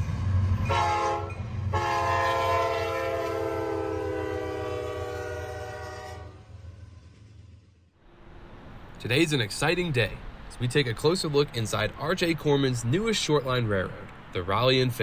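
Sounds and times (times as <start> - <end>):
low engine rumble: 0.0 - 15.0
locomotive air horn blasts: 0.6 - 6.7.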